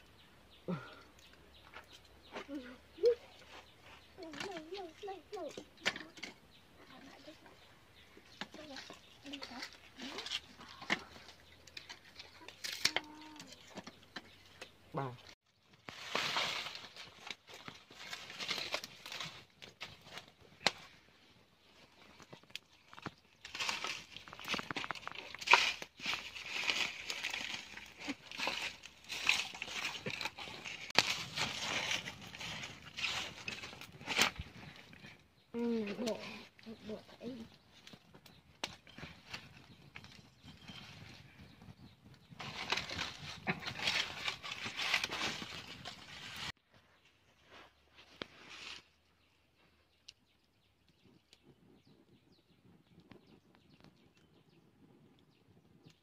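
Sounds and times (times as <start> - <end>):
leaves rustling and crinkling: 0.6 - 51.6
wood fire popping: 15.5 - 46.6.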